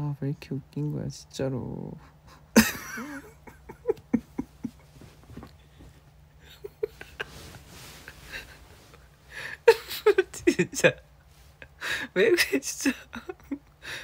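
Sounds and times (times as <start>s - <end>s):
man laughing: 2.0s - 5.5s, 6.4s - 14.0s.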